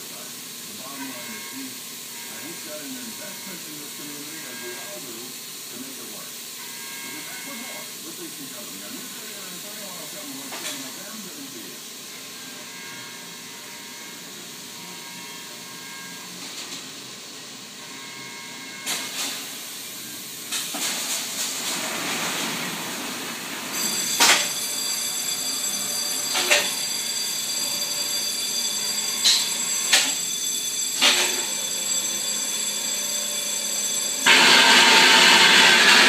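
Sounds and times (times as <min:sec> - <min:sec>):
industrial machine hissing: 0:00.0 - 0:17.8, 0:18.8 - 0:36.0
high-pitched whine: 0:23.1 - 0:36.0.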